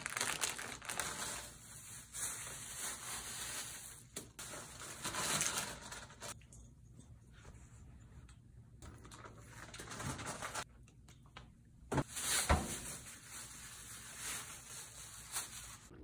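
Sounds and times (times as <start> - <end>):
plastic bag rustling: 0.0 - 6.4, 12.0 - 15.9.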